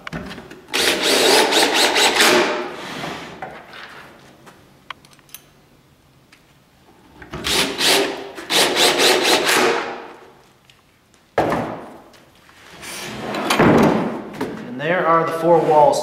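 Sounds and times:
drill driving screws into wood: 0.7s - 3.3s, 7.4s - 10.0s.

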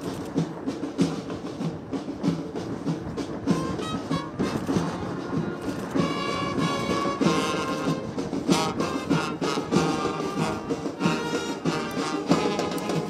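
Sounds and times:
brass band playing: 3.4s - 13.0s.

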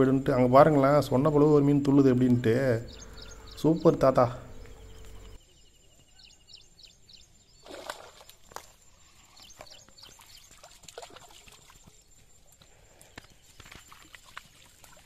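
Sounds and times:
small birds chirping faintly: 0.0s - 15.0s
water splashing and sloshing: 7.6s - 12.3s, 13.4s - 15.0s.

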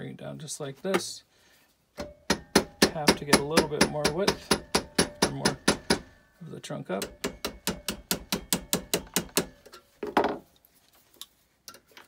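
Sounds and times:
small hammer tapping metal: 2.0s - 6.2s, 7.0s - 9.8s.

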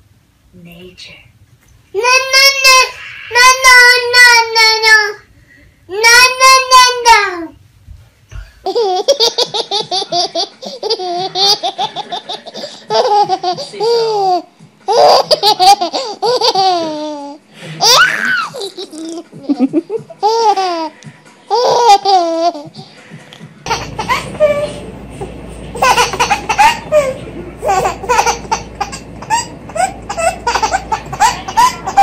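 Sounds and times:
baby laughing: 2.0s - 5.1s, 8.6s - 22.9s, 23.6s - 24.9s, 25.7s - 32.0s.

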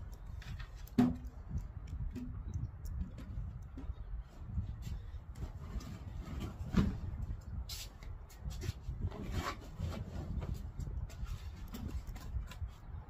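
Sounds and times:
low steady rumble: 0.0s - 13.0s
objects knocking and clicking: 0.3s - 4.0s.

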